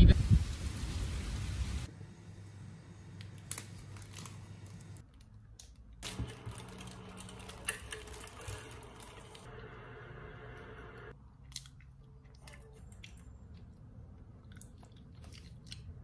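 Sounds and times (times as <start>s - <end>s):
plastic bag crinkling: 3.3s - 5.4s, 6.0s - 9.5s.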